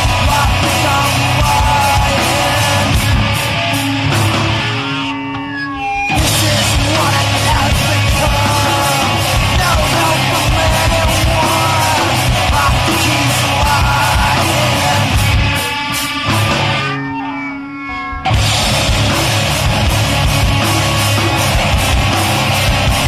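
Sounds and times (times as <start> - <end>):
shouted vocals: 0.0 - 3.2, 6.2 - 15.7
punk rock song: 0.0 - 23.0.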